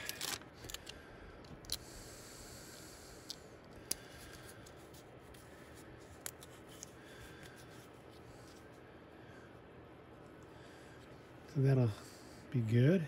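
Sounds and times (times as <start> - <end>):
tape crinkling and rubbing: 0.0 - 0.9, 3.8 - 8.8.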